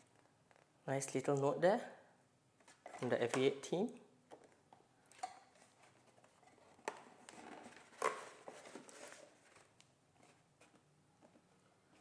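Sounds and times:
packaging rustling: 0:05.5 - 0:10.8.

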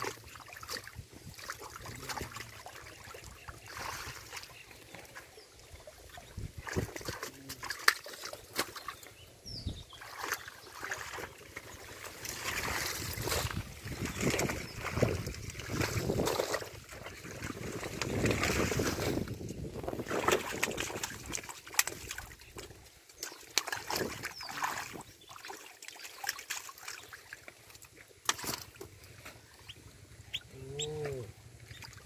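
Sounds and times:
muddy water sloshing and splashing: 0:00.0 - 0:32.0
sharp water slaps: 0:06.6 - 0:09.1, 0:10.0 - 0:19.2, 0:20.0 - 0:27.1, 0:28.2 - 0:28.9.

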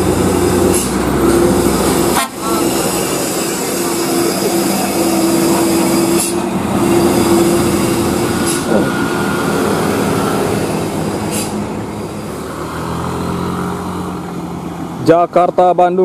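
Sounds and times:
truck diesel engine droning: 0:00.0 - 0:16.0
short high hisses: 0:00.7 - 0:11.8.

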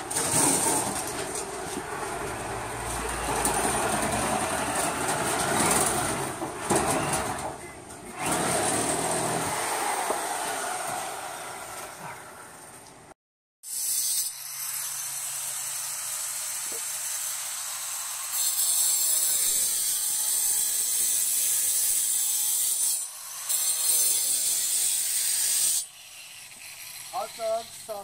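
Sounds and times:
rasping scraping noise: 0:00.0 - 0:11.0.

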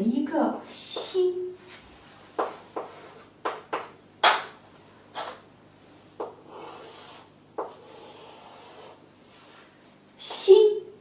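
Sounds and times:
chalk scraping on blackboard: 0:02.4 - 0:03.3, 0:06.2 - 0:09.7
chalk tapping on blackboard: 0:02.4 - 0:04.4, 0:06.2 - 0:09.0.

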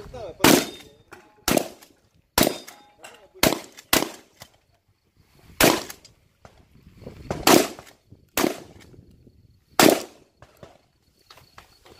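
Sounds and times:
shotgun shots: 0:00.4 - 0:02.8, 0:03.4 - 0:04.4, 0:05.6 - 0:06.0, 0:07.3 - 0:08.8, 0:09.8 - 0:10.2.

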